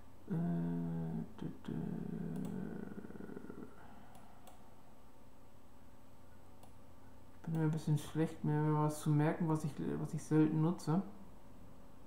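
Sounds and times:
man humming: 0.3 - 3.9.

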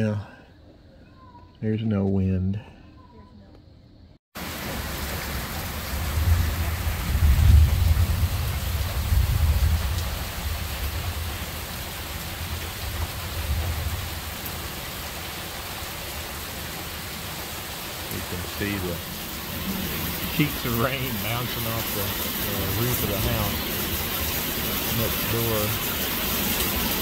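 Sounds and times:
heavy rain pouring: 4.4 - 27.0
low rumble of thunder: 4.7 - 27.0.

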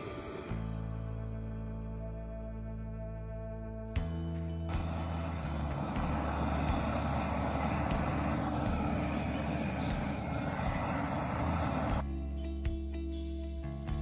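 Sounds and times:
propane torch hissing: 0.0 - 0.8, 4.7 - 12.0
music: 0.0 - 14.0.

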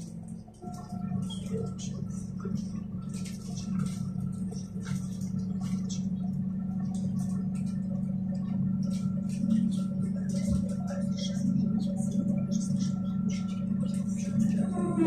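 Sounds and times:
bus engine idling: 0.0 - 15.0.

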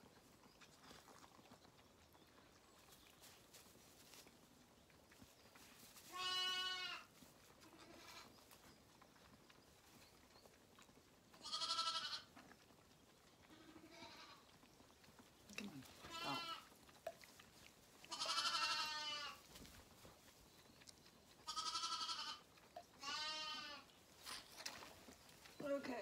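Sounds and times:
lambs bleating: 6.1 - 8.3, 11.4 - 12.3, 13.5 - 14.4, 16.0 - 16.7, 18.1 - 19.4, 21.4 - 23.9.

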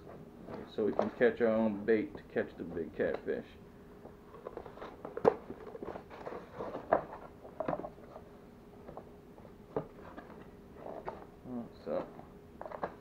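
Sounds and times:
cardboard scraping and rustling: 4.3 - 8.2.

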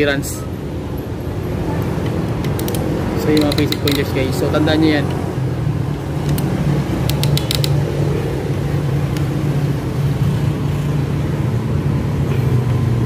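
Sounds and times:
sharp metal clicks: 2.0 - 4.4, 6.2 - 7.9.

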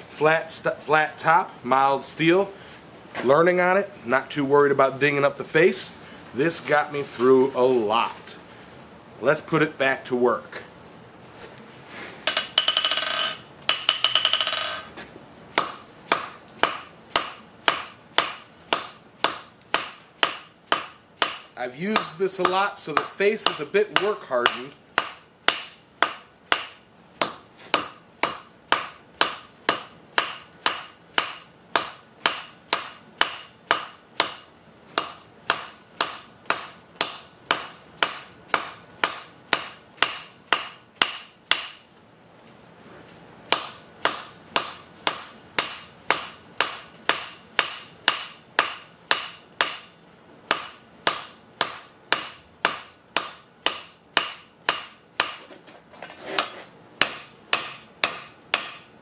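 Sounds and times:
hammer forging steel on anvil: 12.2 - 14.9, 15.6 - 41.9, 43.5 - 55.4, 56.4 - 59.0.

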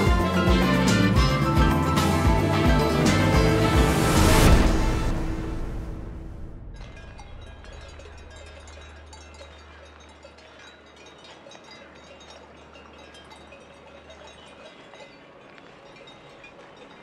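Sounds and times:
distant cowbells clinking: 6.7 - 17.0.

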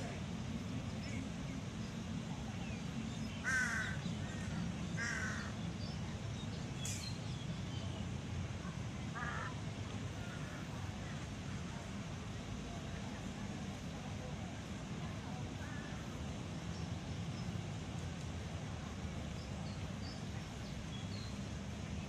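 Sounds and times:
crow cawing: 3.4 - 4.0, 5.0 - 5.5, 9.2 - 9.5.

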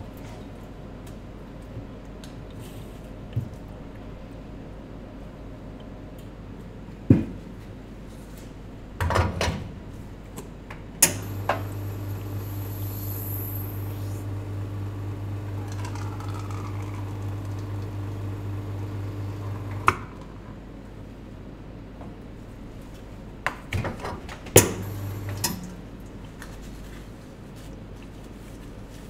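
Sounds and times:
espresso machine pump humming: 11.0 - 20.1, 24.6 - 25.9.

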